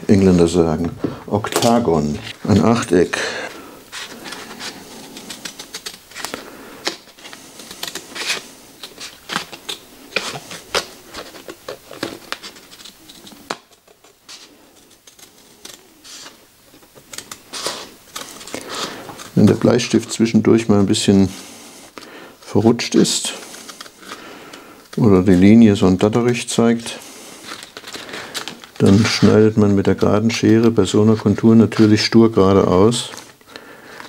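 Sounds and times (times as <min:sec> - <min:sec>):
paper sheet rustling: 0:00.1 - 0:20.2, 0:23.0 - 0:34.0.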